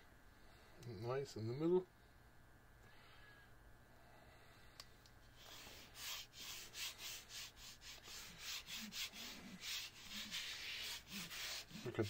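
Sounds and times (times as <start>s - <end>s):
palms brushing on plate: 5.3s - 12.0s.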